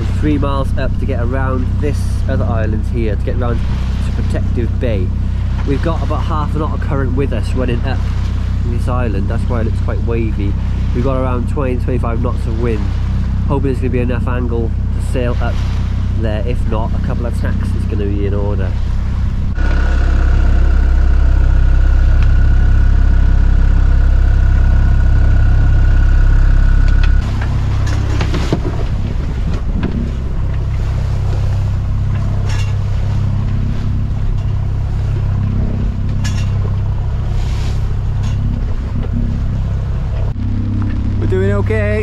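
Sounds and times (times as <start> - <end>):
boat engine running: 0.0 - 42.0
waves splashing against hull: 0.0 - 42.0
wind buffeting microphone: 14.4 - 42.0.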